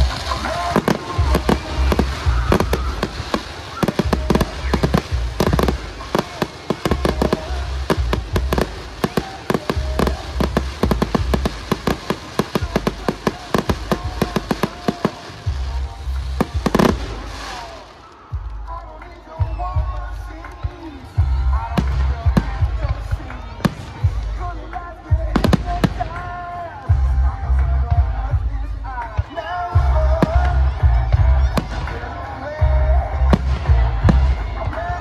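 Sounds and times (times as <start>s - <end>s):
fireworks cracking and popping: 0.0s - 27.1s, 28.0s - 35.0s.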